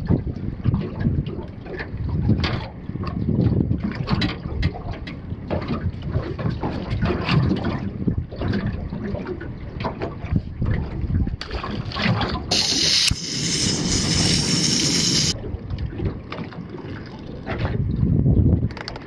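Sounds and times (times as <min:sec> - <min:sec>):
wind buffeting microphone: 0:00.0 - 0:16.3, 0:17.4 - 0:19.0
water against boat hull: 0:00.0 - 0:19.0
gas stove burner hissing: 0:12.5 - 0:15.4.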